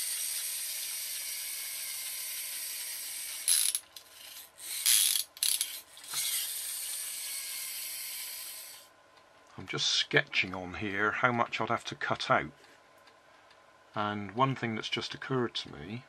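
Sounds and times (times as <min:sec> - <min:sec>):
toy flywheel motor whirring: 0:00.0 - 0:08.9.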